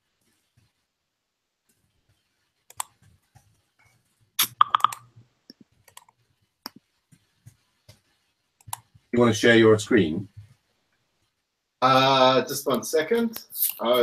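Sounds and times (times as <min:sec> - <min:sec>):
computer keyboard keystrokes: 0:04.6 - 0:05.0.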